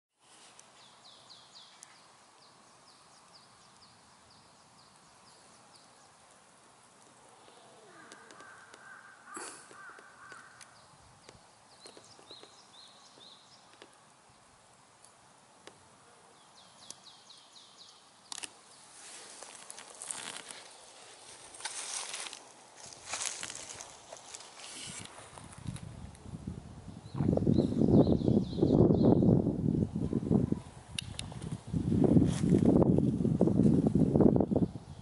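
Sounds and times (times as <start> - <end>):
songbirds singing: 0.7 - 14.5, 15.6 - 25.0, 27.0 - 29.4.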